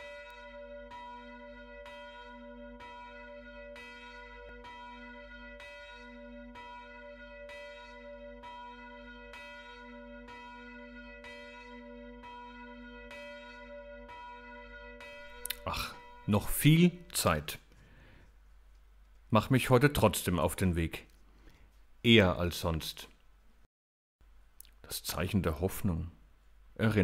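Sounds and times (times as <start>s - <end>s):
church bell ringing: 0.0s - 17.2s.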